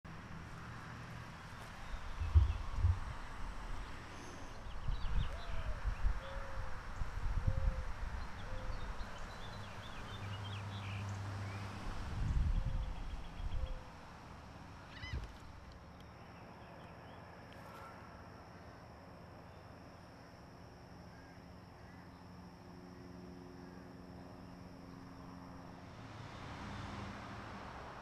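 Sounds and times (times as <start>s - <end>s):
bird call: 14.9s - 15.5s
steady low hum: 15.5s - 26.4s.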